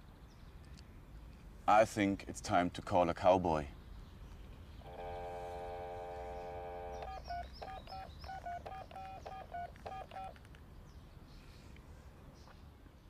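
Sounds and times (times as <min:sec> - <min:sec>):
telephone dial tone: 0:04.9 - 0:10.4
touch-tone keypad beeps: 0:07.0 - 0:10.3.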